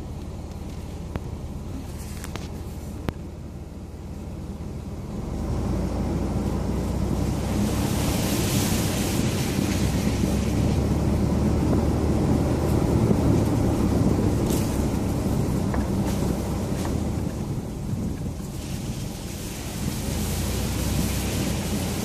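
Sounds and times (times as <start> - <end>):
vehicle engine and road rumble: 0.0 - 22.0
wind noise on microphone: 5.3 - 22.0.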